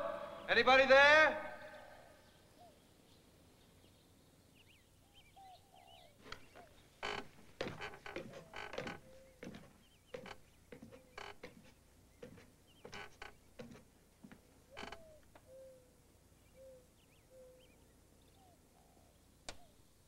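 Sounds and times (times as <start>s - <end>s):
wooden stairs creaking under footsteps: 6.2s - 15.4s.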